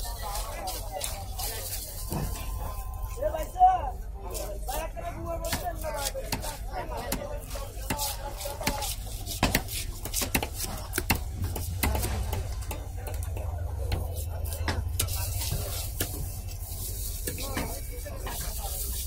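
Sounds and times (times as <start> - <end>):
knife scraping fish scales: 5.4 - 12.4, 14.1 - 19.0.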